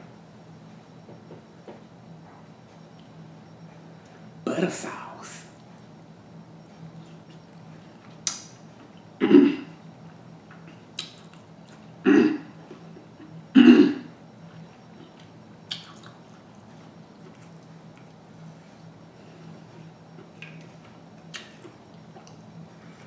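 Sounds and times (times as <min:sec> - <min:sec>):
woman clearing throat: 0:09.2 - 0:09.8, 0:12.0 - 0:12.5, 0:13.6 - 0:14.1.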